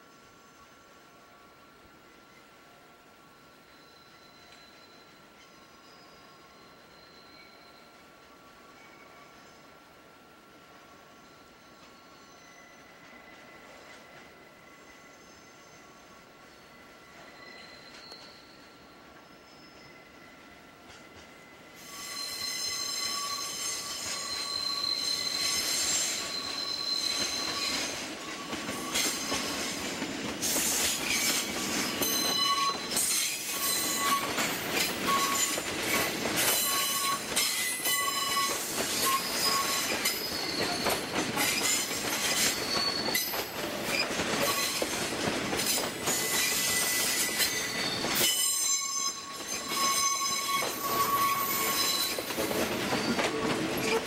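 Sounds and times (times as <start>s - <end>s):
wheels squealing: 21.8s - 45.0s, 45.6s - 54.0s.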